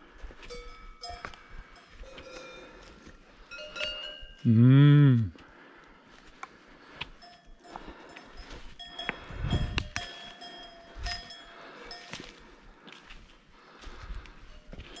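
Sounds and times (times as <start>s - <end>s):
cowbells ringing: 0.3s - 5.0s, 6.8s - 12.7s, 14.4s - 15.0s.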